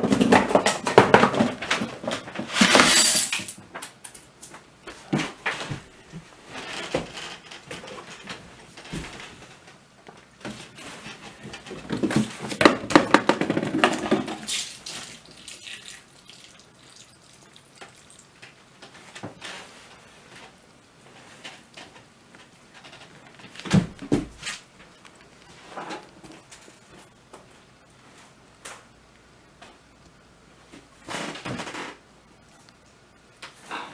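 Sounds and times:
balls clicking through cardboard tubes: 0:11.1 - 0:16.2
milk pouring into a bowl: 0:14.8 - 0:18.4.

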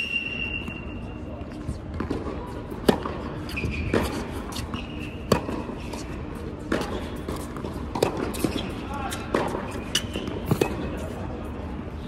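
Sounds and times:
tennis ball bouncing on hard court: 0:01.9 - 0:11.1.

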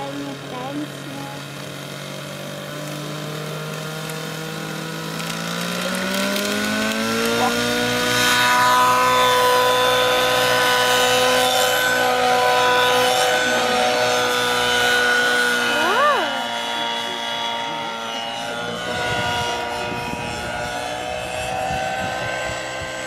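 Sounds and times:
model helicopter engine spooling up: 0:00.0 - 0:23.0.

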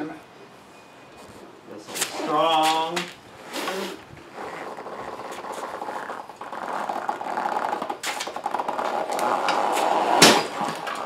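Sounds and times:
metal frame scraping on concrete: 0:01.9 - 0:11.0
heavy knock of kart landing: 0:10.0 - 0:10.9.

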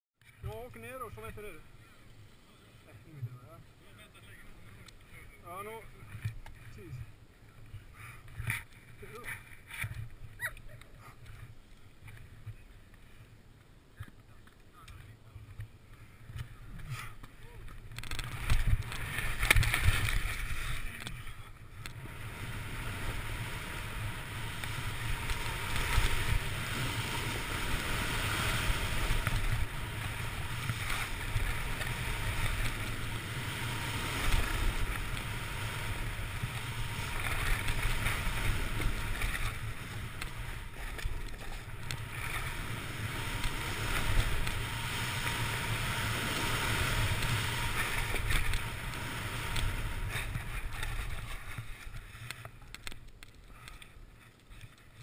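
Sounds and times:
skis hissing through snow: 0:18.2 - 0:21.0, 0:22.0 - 0:52.6.

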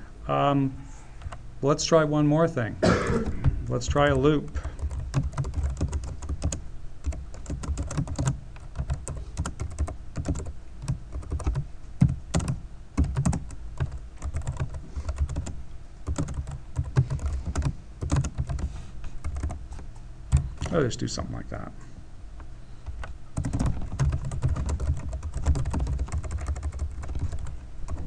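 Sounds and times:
typing on computer keyboard: 0:04.5 - 0:19.6, 0:23.0 - 0:28.0.

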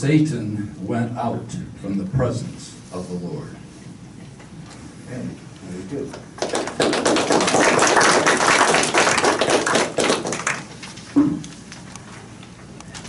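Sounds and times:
audience clapping: 0:06.1 - 0:11.0.

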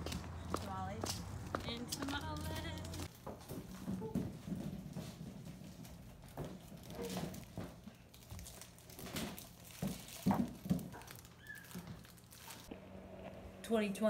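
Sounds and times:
balloons rustling and crinkling: 0:02.4 - 0:12.7.

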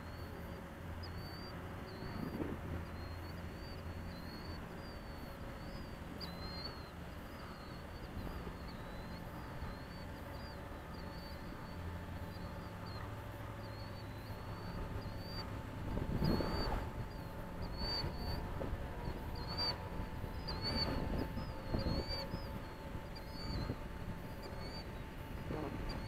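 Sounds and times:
bird chirping: 0:00.1 - 0:15.4, 0:16.2 - 0:26.0
wind rumble: 0:01.4 - 0:26.0
wind gust on microphone: 0:14.4 - 0:26.0.

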